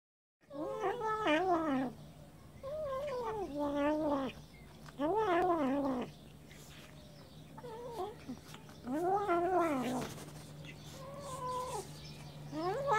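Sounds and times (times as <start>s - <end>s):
kittens yowling: 0.4s - 2.0s, 2.6s - 4.4s, 5.0s - 6.1s, 7.6s - 10.2s, 10.9s - 12.9s.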